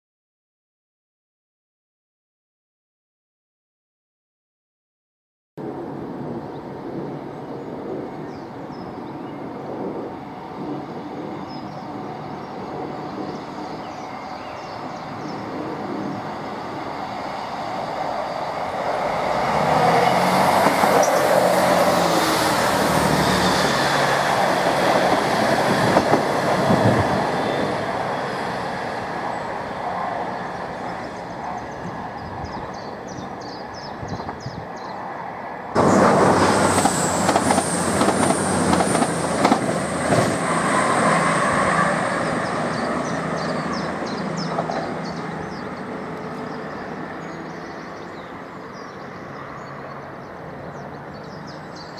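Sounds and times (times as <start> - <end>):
train passing: 5.6 - 51.9
sudden rush of noise: 35.8 - 42.8.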